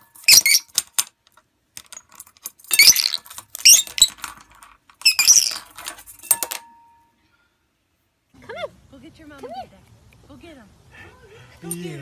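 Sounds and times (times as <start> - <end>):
clothespin rattling in metal pot: 1.8 - 6.6.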